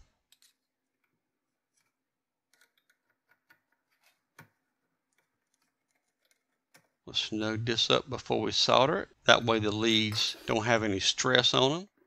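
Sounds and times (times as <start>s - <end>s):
faint clicks of small parts: 0.0s - 7.0s.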